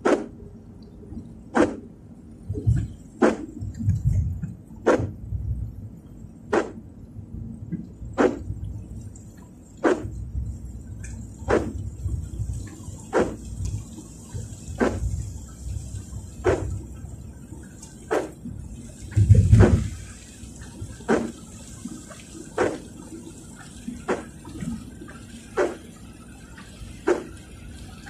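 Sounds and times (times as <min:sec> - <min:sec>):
low rumble of moving car: 0:00.0 - 0:28.0
windscreen wipers sweeping: 0:00.0 - 0:28.0.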